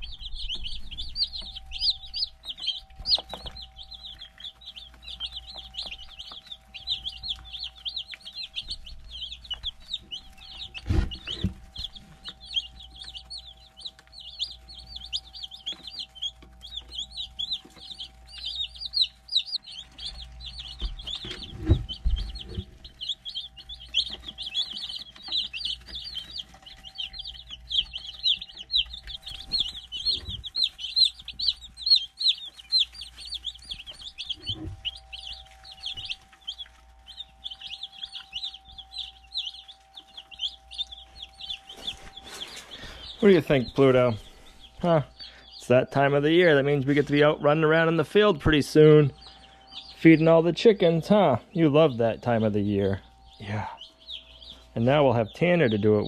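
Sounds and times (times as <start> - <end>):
dull low thumps: 0.0 - 15.6, 19.6 - 24.6
chicks peeping: 0.0 - 56.0
faint steady hum: 0.0 - 56.0.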